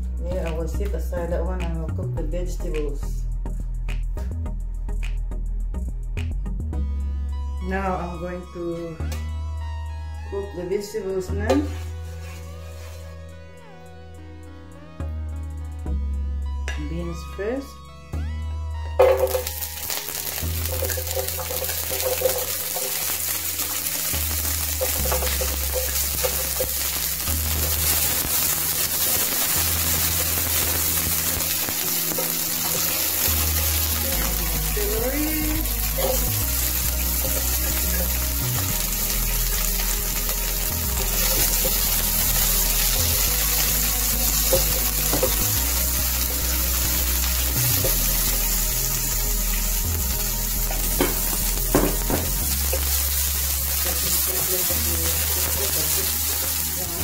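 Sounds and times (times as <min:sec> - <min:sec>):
background music with bass line: 0:00.0 - 0:57.0
vegetables sizzling in hot oil: 0:11.6 - 0:13.1, 0:19.0 - 0:57.0
spatula stirring: 0:20.6 - 0:34.6.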